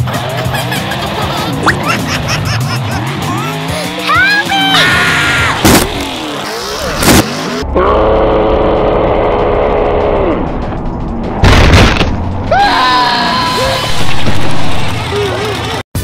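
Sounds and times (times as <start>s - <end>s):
engine high-revving: 0.0s - 11.4s, 13.4s - 16.0s
truck crash booms: 11.4s - 12.4s.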